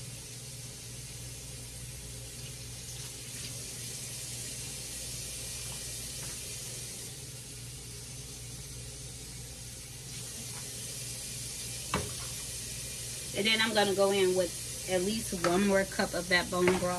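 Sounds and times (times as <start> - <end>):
steady hiss: 0.0 - 16.9
water pouring into a pot: 9.9 - 16.1.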